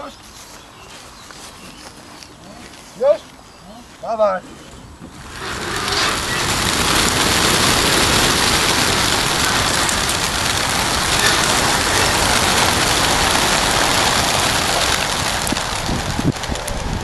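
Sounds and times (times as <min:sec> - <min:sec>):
pigeon wingbeats: 0:05.3 - 0:17.0.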